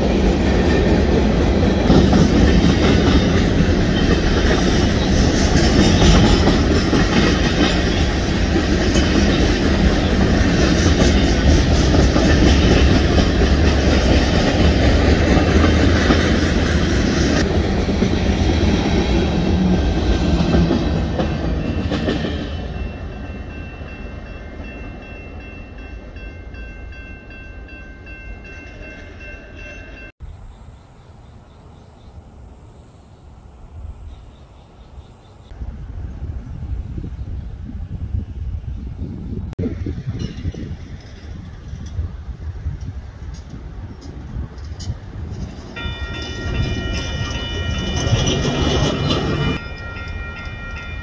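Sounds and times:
train wheels clattering on rails: 0.0s - 23.8s, 39.7s - 51.0s
grade crossing bell ringing: 21.2s - 30.1s, 45.4s - 51.0s.

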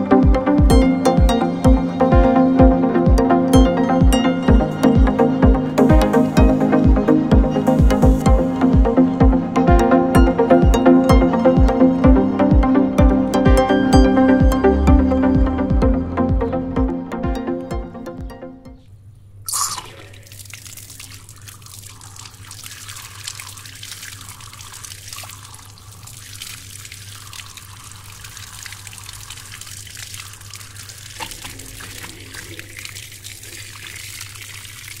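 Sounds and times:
tap water splashing on hand: 19.5s - 35.0s
low hum: 31.0s - 34.1s.

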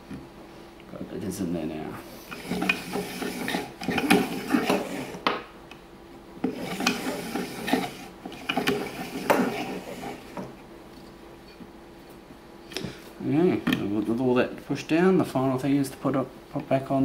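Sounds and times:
pull-starter clicking and rattling: 2.3s - 5.0s.

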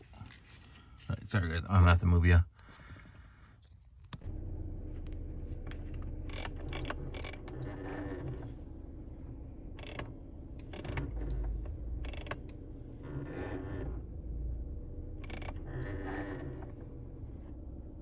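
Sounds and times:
cabin blower hum: 4.2s - 18.0s.

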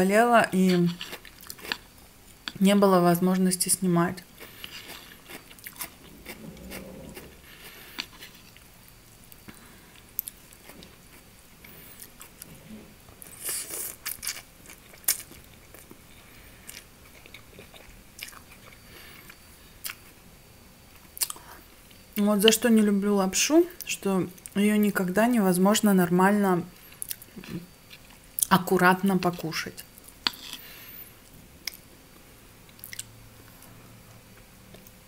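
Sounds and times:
person chewing: 0.7s - 2.6s, 4.3s - 8.7s, 13.2s - 20.0s, 32.7s - 33.1s.

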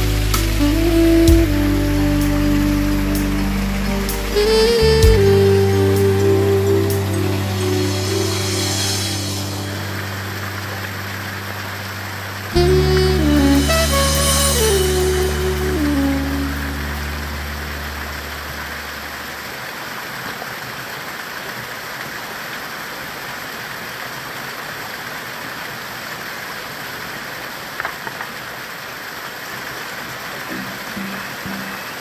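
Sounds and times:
stream water rushing over rocks: 16.4s - 32.0s.

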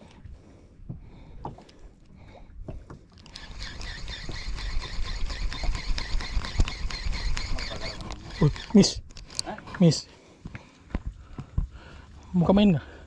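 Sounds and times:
fishing reel whirring and clicking: 3.2s - 9.4s.

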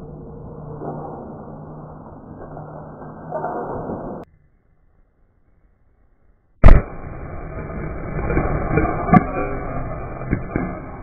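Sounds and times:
loud sharp bang: 6.6s - 11.0s
sharp crack: 6.6s - 11.0s.

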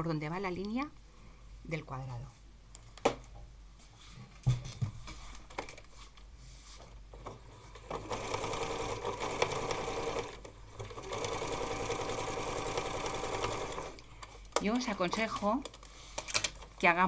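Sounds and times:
sewing machine stitching: 7.2s - 14.0s, 14.6s - 16.6s.

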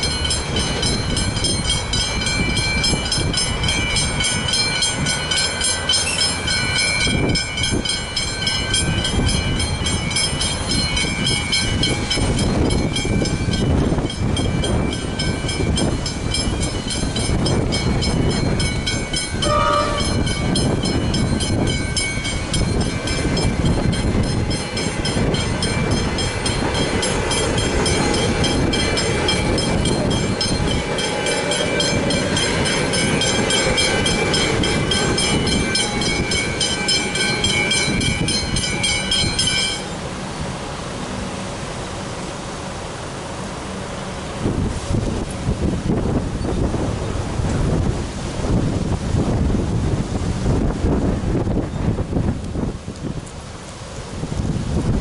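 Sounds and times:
level-crossing bells ringing: 0.0s - 40.0s
electric train rumbling: 0.0s - 55.0s.

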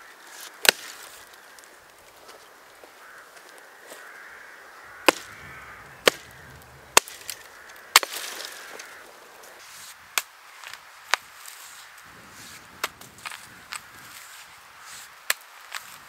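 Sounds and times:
axe chopping wood: 0.6s - 1.0s, 5.0s - 5.4s, 6.0s - 8.5s.

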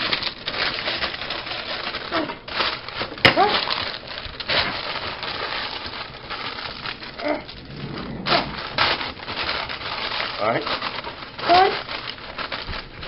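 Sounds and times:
baking paper crinkling: 0.0s - 13.0s.

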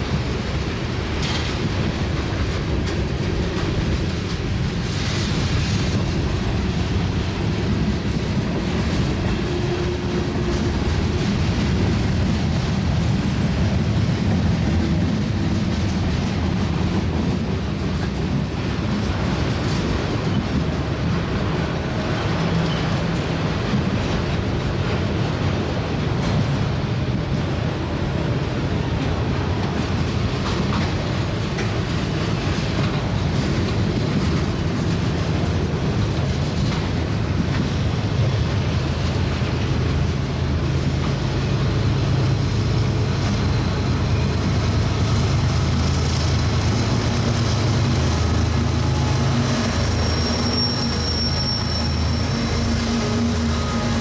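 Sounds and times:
freight train cars rolling past: 0.0s - 54.0s
steel wheels rumbling on rail: 0.0s - 54.0s.

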